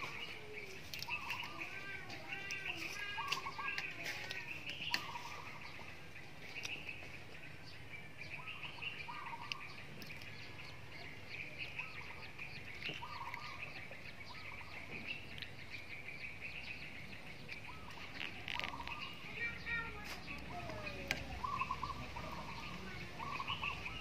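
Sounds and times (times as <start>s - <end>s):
small birds chirping: 0.0s - 24.0s
steady high outdoor background: 0.0s - 24.0s
short low bird calls: 20.5s - 24.0s.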